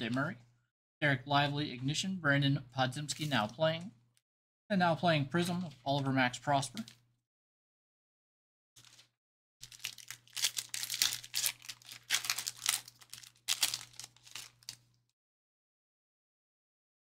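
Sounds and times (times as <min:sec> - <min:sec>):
card wrapper crinkling and tearing: 0:08.8 - 0:15.0.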